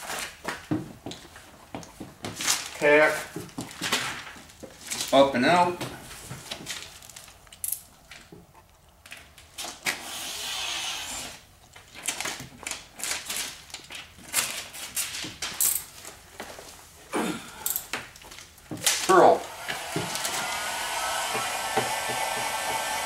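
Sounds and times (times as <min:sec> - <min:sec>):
window film clicks and rustles: 0:03.4 - 0:05.2, 0:11.6 - 0:16.4, 0:17.7 - 0:19.2.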